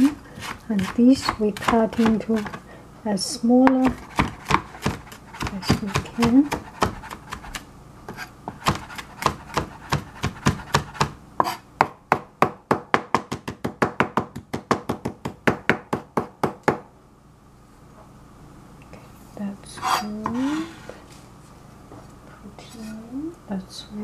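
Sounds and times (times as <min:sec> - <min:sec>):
knife chopping on cutting board: 0:00.0 - 0:02.6, 0:03.6 - 0:16.8.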